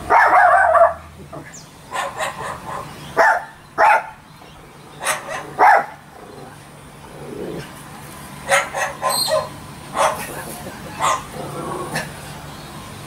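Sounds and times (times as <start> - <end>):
dog-like barks: 0.0 - 1.0, 1.9 - 4.2, 5.0 - 6.0, 8.5 - 10.4, 11.0 - 11.4.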